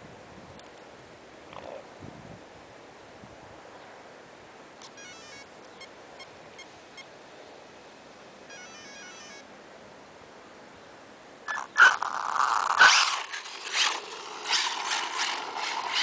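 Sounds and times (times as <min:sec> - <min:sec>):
stepped beeps from motor: 0:08.5 - 0:09.4.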